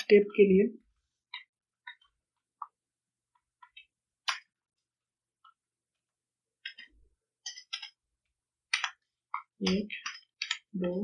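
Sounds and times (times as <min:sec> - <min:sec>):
keyboard and mouse clicks: 0:08.7 - 0:11.0.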